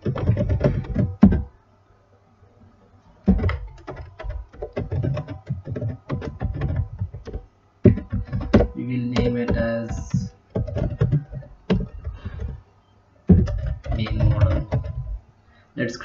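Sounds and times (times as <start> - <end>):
typing on computer keyboard: 0.0 - 1.5, 3.2 - 12.6, 13.3 - 15.2.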